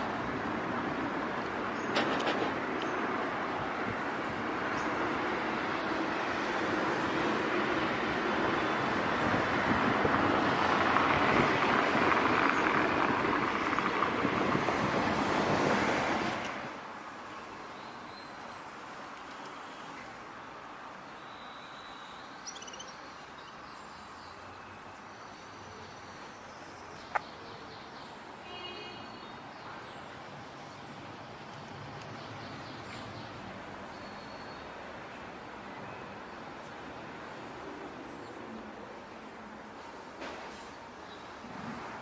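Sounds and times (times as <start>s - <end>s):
road traffic noise: 0.0s - 42.0s
faint bird chirps: 21.2s - 27.9s.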